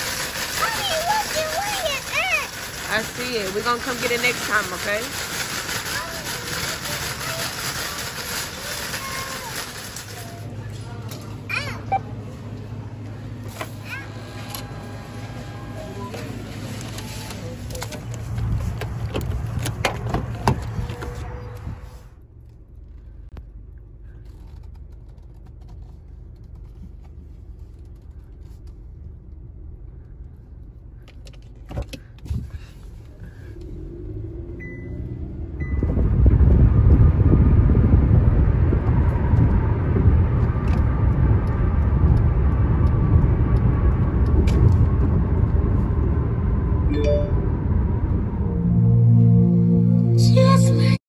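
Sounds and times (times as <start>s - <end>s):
car engine humming: 0.0s - 51.0s
engine and tyre rumble: 0.0s - 51.0s
short beeps: 34.6s - 36.0s, 46.9s - 47.6s.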